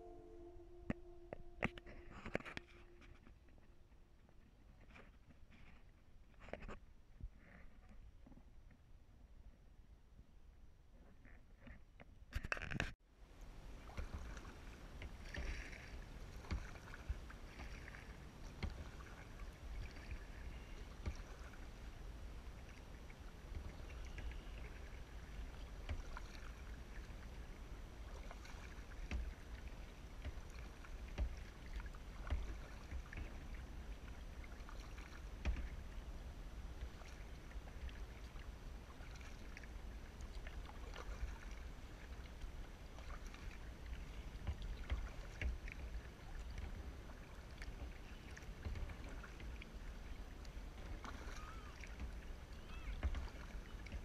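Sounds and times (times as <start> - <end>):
steady low rumble: 0.0 - 4.6
paddle dipping and dripping: 13.4 - 54.0.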